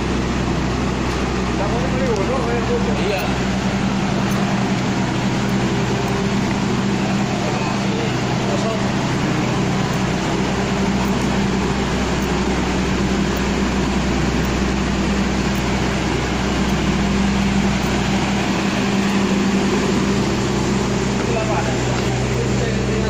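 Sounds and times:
air-conditioning hum: 0.0 - 23.0
diesel train machinery humming: 0.0 - 23.0.

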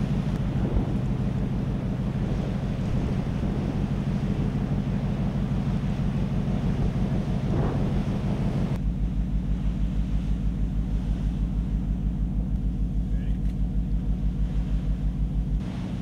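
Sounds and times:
wind on microphone: 0.0 - 8.8
ship engine hum: 0.0 - 16.0.

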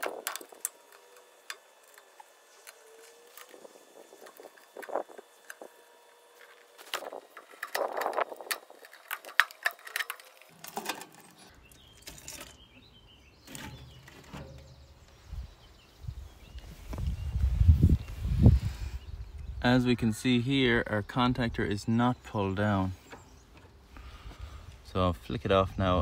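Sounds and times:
metallic clicks and scrapes: 6.4 - 12.6.

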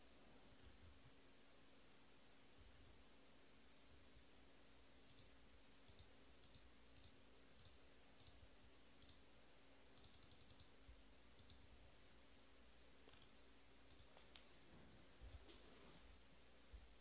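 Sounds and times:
low room hum: 0.0 - 17.0
faint small clicks: 13.0 - 14.5.

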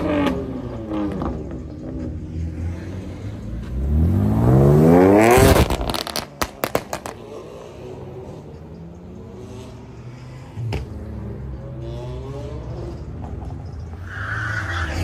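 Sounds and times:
car engine accelerating: 0.0 - 14.0
exhaust pops and crackles: 5.4 - 7.2.

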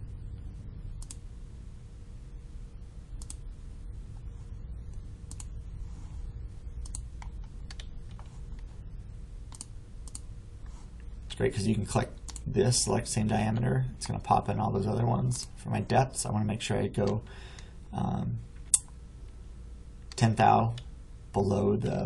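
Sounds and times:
steady low hum: 0.0 - 22.0
computer mouse clicking: 1.0 - 1.2, 3.2 - 3.4, 4.9 - 5.5, 6.8 - 8.7, 9.5 - 10.3, 12.2 - 12.5.

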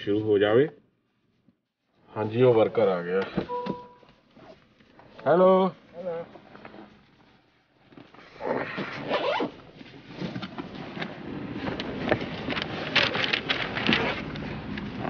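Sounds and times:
fabric and backpack rustling: 5.8 - 14.3
handling clicks and clatters: 9.8 - 15.0.

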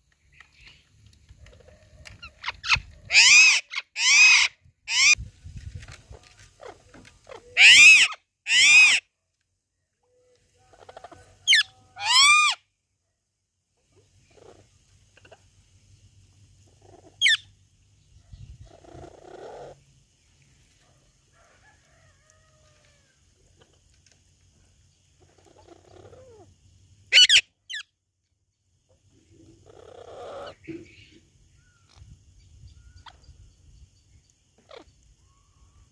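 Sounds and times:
parrots calling loudly: 2.3 - 5.2, 6.6 - 9.0, 11.4 - 12.6, 27.1 - 27.8, 34.6 - 34.9.

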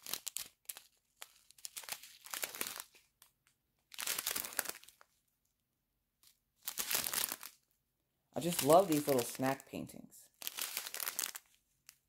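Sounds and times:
plastic bags crinkling: 0.0 - 3.3, 3.9 - 5.1, 6.6 - 7.6, 8.4 - 9.7, 10.3 - 12.0.

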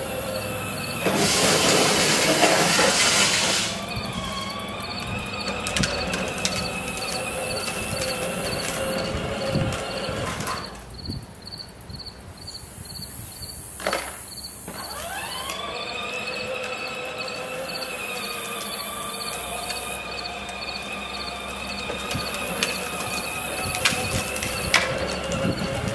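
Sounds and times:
toy tractor electric motor whining: 0.0 - 10.9, 13.8 - 25.9
insects chirping: 0.0 - 25.9.

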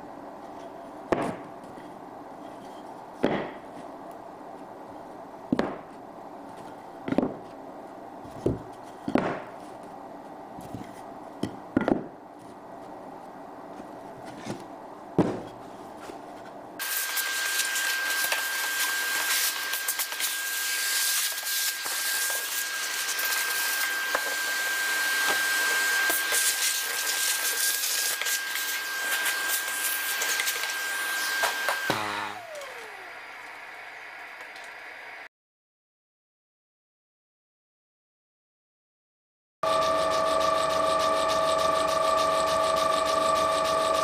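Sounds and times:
track saw cutting plywood: 16.8 - 34.8, 39.6 - 44.0.

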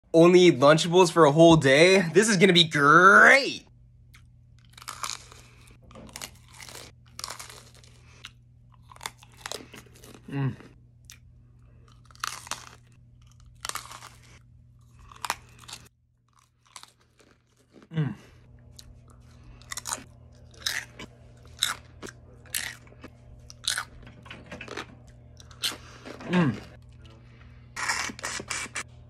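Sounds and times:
crunchy bites and chewing: 4.0 - 24.0, 24.6 - 27.0.

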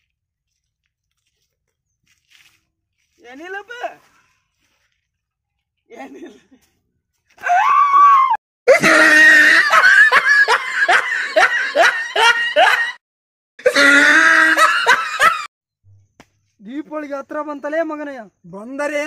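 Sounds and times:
high-pitched human shrieks: 7.4 - 9.7, 13.6 - 14.8.

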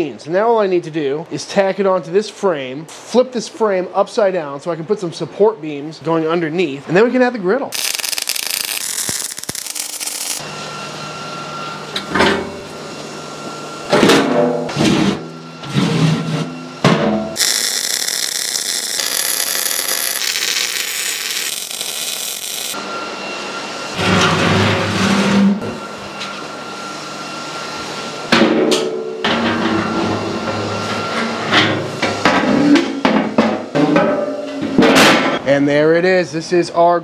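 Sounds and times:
metalworking tool harsh noise: 7.7 - 10.4, 17.4 - 22.8.

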